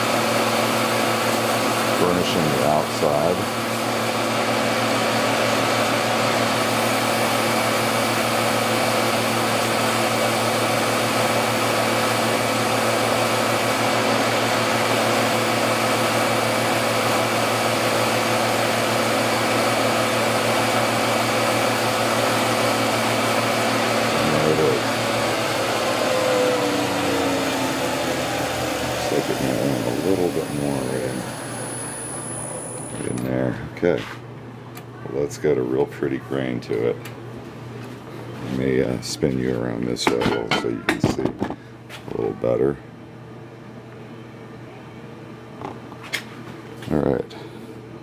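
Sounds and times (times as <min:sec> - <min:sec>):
wood lathe motor whine: 0:00.0 - 0:33.3.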